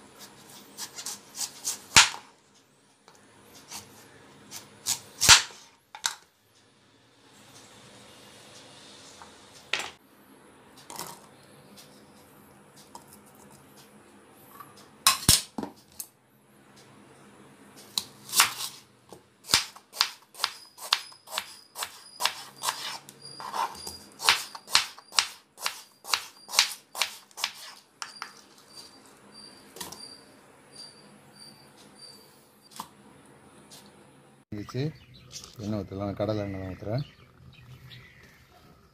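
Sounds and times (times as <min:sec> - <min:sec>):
knife chopping on wooden board: 0:19.5 - 0:27.7.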